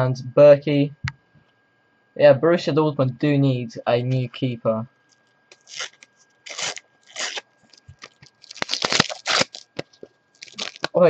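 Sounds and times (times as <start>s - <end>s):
sticker packet crinkling: 5.2s - 11.0s
packet tearing and crackling: 5.5s - 11.0s.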